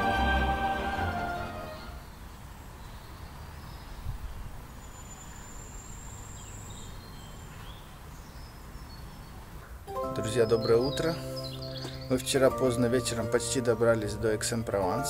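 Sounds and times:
faint bird chirps: 2.0s - 9.4s, 10.5s - 12.2s.

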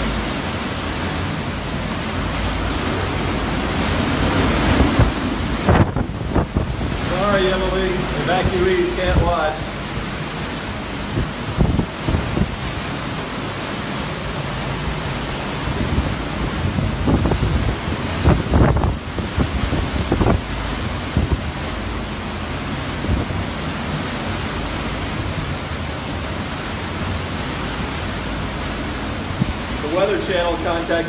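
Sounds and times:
wind and driving rain: 0.0s - 31.0s
wind buffeting microphone: 0.0s - 31.0s.

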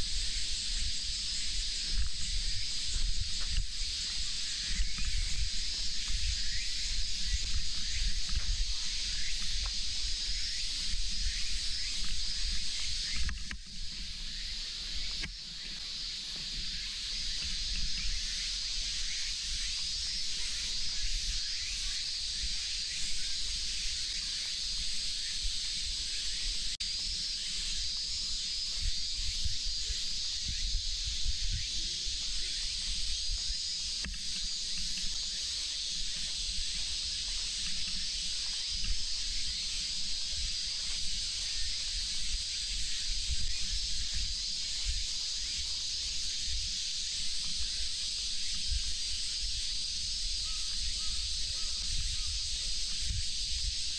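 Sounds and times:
cicadas droning: 0.0s - 53.9s.

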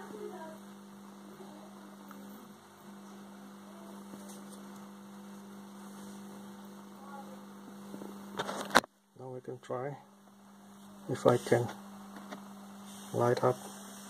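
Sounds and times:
transformer electrical hum: 0.0s - 14.0s.

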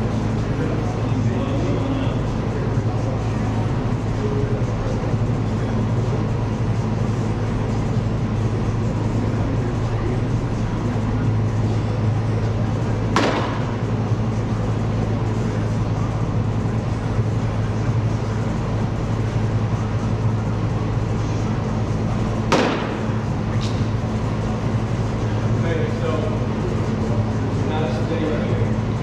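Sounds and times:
low hum of indoor hall: 0.0s - 29.0s
baseball smacking down: 13.2s - 13.7s, 22.5s - 23.8s.

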